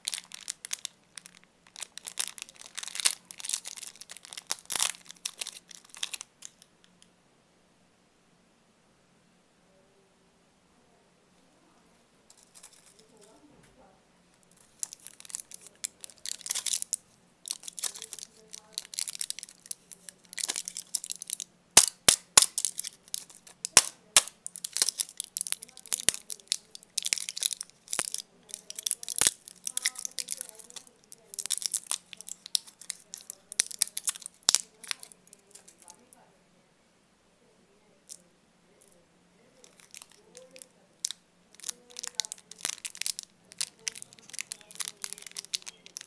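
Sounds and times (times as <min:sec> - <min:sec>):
foil crinkling and tearing: 0:00.0 - 0:06.6, 0:14.6 - 0:35.8, 0:39.6 - 0:46.0
blister pack clicks and pops: 0:20.4 - 0:30.7.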